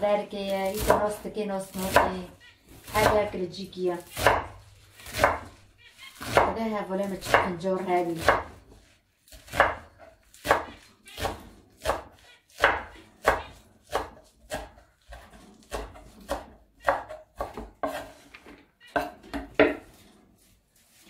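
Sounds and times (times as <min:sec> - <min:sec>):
knife chopping on wooden board: 0:00.6 - 0:02.2, 0:04.0 - 0:05.6, 0:06.2 - 0:18.3, 0:18.9 - 0:20.0.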